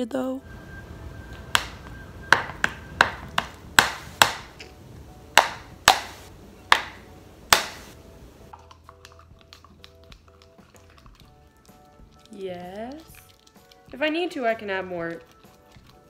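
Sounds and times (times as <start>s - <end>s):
stick slapping slime in plastic tub: 1.5s - 4.6s, 5.4s - 7.8s.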